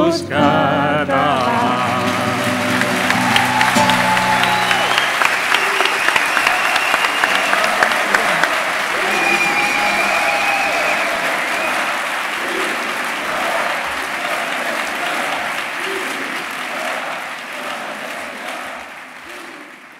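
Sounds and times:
audience applauding: 1.2s - 19.9s.

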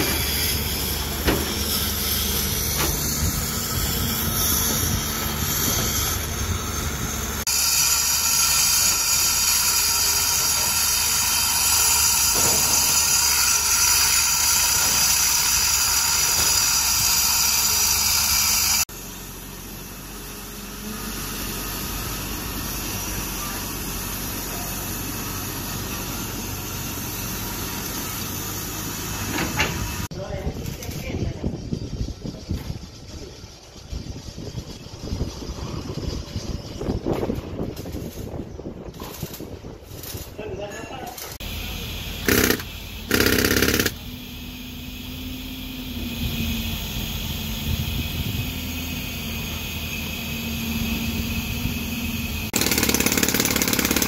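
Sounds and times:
excavator diesel engine running: 0.0s - 30.1s
power tool cutting concrete: 1.9s - 18.9s, 42.3s - 44.0s, 52.5s - 54.0s.

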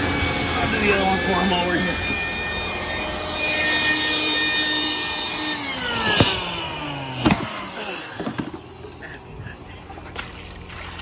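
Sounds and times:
shop vacuum motor whine: 0.0s - 9.2s
sharp knocks: 6.1s - 6.4s.

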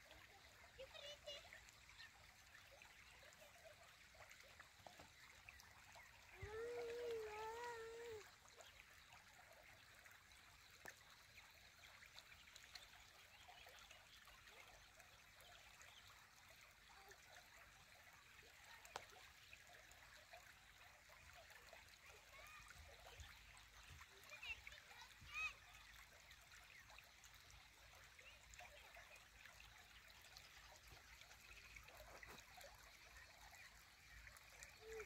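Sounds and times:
trickle of flowing water: 0.0s - 35.0s.

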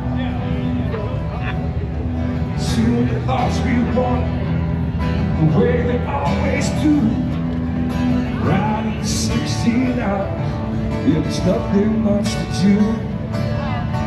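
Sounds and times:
guitar accompaniment: 0.0s - 14.0s
person singing country music: 0.0s - 14.0s.

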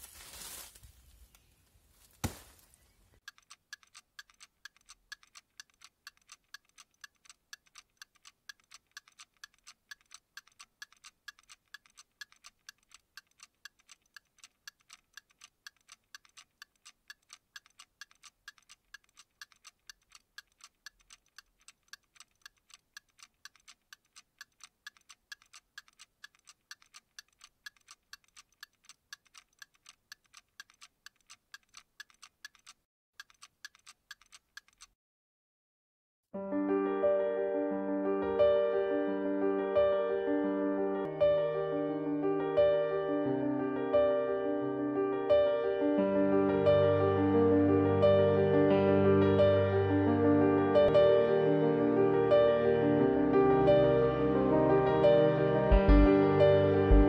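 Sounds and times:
clock ticking: 3.2s - 35.0s, 55.7s - 56.1s.

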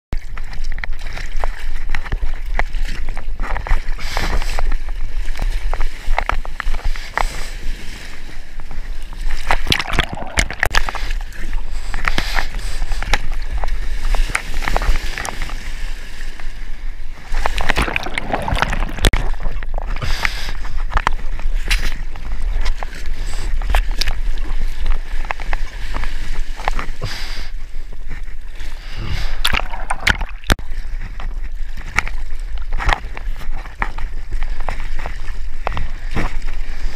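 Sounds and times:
water sloshing and splashing: 0.2s - 36.9s
hands paddling through water: 8.7s - 36.9s.

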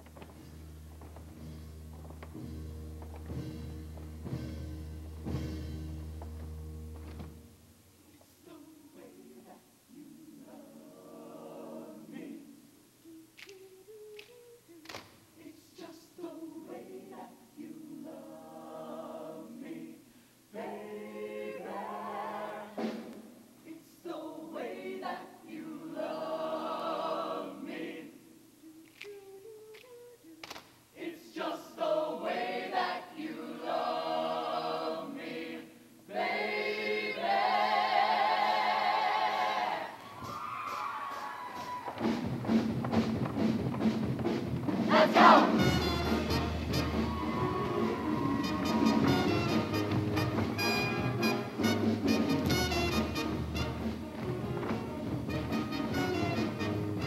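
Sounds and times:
choir singing in harmony: 8.4s - 12.8s, 15.4s - 28.4s, 30.9s - 40.0s, 44.8s - 51.6s.

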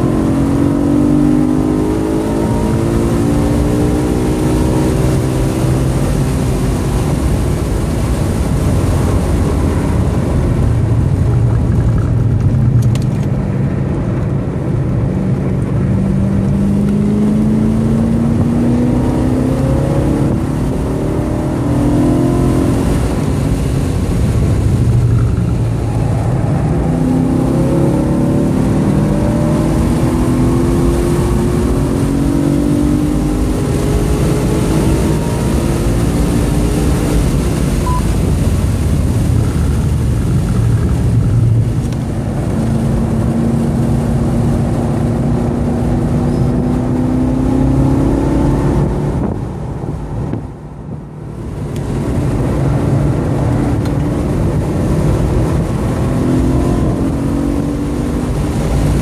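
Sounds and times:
car engine revving: 0.0s - 59.0s.

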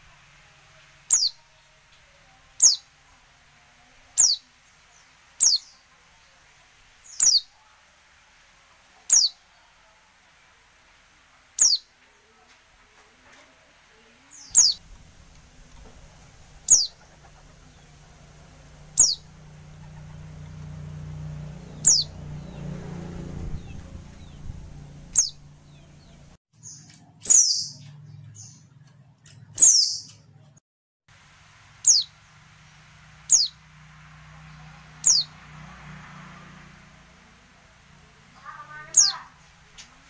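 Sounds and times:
bird high descending call: 14.4s - 14.9s, 16.0s - 20.9s, 21.7s - 26.2s, 38.4s - 39.4s.

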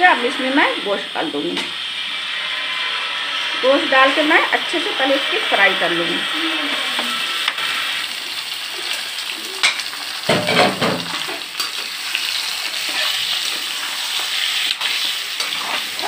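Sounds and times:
meat sizzling in hot oil: 0.0s - 16.0s
metal spoon scraping a pan: 0.4s - 6.3s, 9.6s - 16.0s
knock on a pan: 10.3s - 11.2s.

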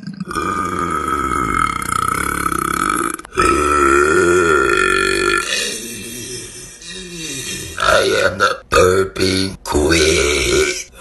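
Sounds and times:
woman burping: 0.0s - 8.6s.

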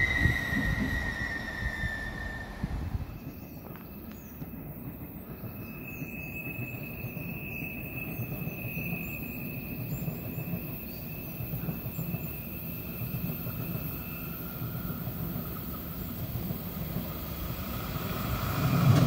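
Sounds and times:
high wheel squeal: 0.0s - 4.4s, 5.3s - 16.2s
train rumble: 0.0s - 19.0s.

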